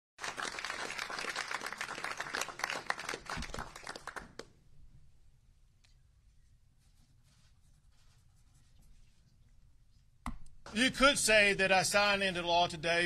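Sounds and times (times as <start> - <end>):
crowd applauding: 0.2 - 4.5.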